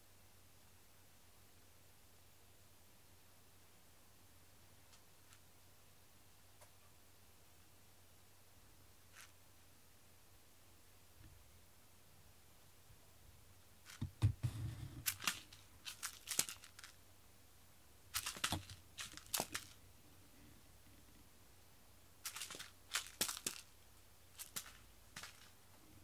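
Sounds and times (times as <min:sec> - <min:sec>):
scratchy rustling and clicks: 0:09.1 - 0:09.4, 0:13.8 - 0:17.0, 0:18.1 - 0:19.8, 0:22.2 - 0:25.6
dull thump: 0:14.0 - 0:15.0.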